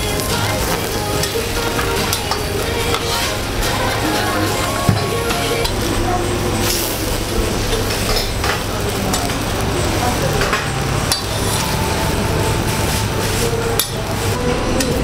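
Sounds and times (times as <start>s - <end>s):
metal spatula scraping griddle: 0.0s - 5.8s, 10.6s - 14.1s
tofu sizzling on a griddle: 6.6s - 14.4s.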